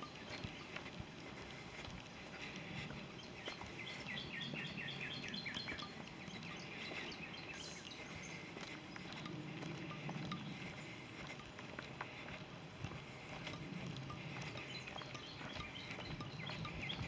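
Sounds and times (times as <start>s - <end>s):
footsteps on dirt trail: 0.0s - 17.0s
songbird trilling: 3.2s - 11.0s, 14.2s - 17.0s.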